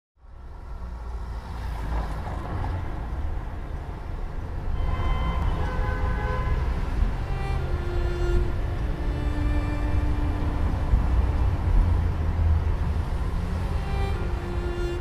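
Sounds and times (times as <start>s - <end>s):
sustained string notes: 4.3s - 15.0s.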